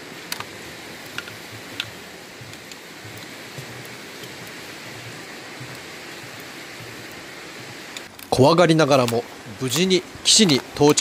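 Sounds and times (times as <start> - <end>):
stream rushing: 0.0 - 11.0
footsteps on wooden planks: 0.1 - 8.4.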